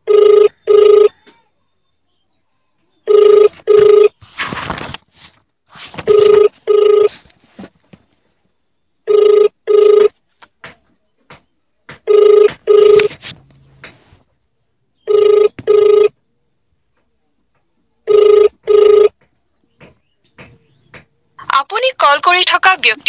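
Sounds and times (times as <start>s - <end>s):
telephone ringback tone: 0.0s - 1.3s, 3.1s - 4.2s, 6.0s - 7.2s, 9.1s - 10.2s, 12.1s - 13.2s, 15.1s - 16.2s, 18.1s - 19.2s.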